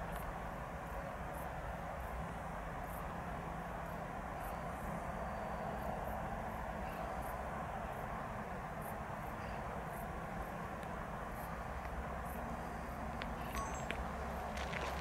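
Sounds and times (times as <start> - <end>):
distant traffic hum: 0.0 - 15.0
high insect chirps: 11.4 - 15.0.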